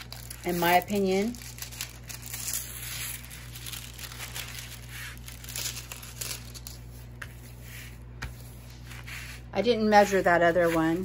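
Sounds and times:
plastic film crinkling: 0.0 - 7.6.

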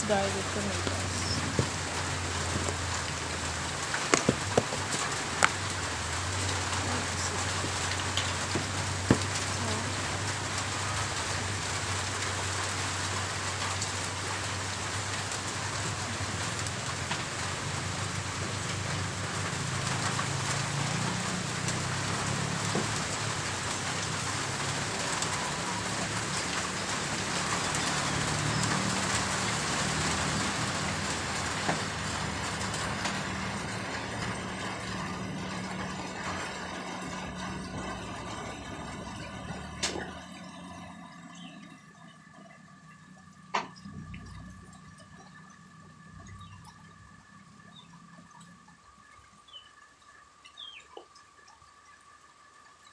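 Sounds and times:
low hum: 32.1 - 50.4.

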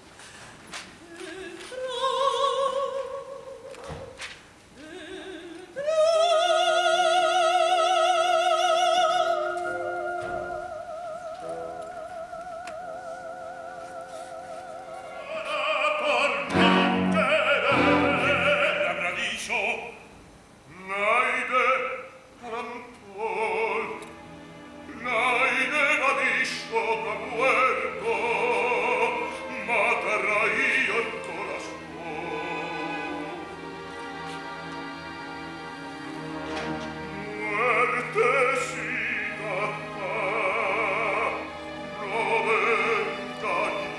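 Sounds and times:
orchestra: 0.0 - 43.9
woman singing opera: 1.0 - 19.8, 20.7 - 24.1, 24.9 - 33.5, 37.1 - 43.9
man singing opera: 4.8 - 20.1, 20.7 - 24.2, 24.8 - 33.6, 37.0 - 43.9.

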